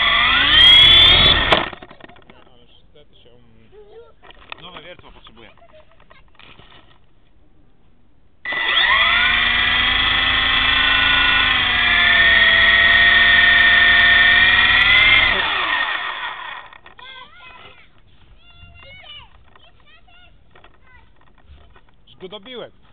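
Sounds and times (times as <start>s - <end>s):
helicopter rotor whine: 0.0s - 2.2s.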